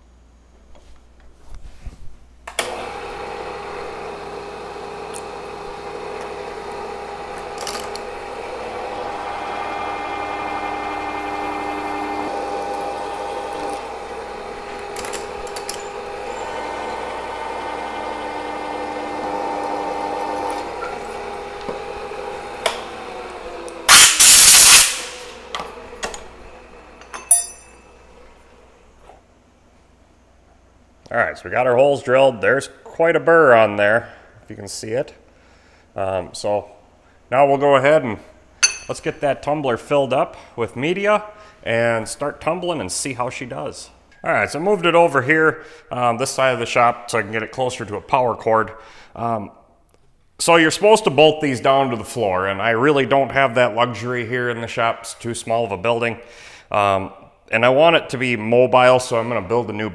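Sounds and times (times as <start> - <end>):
milling machine spindle running: 2.6 - 28.7
loud hiss: 23.8 - 25.5
metal clinks: 27.0 - 27.9, 38.6 - 39.0.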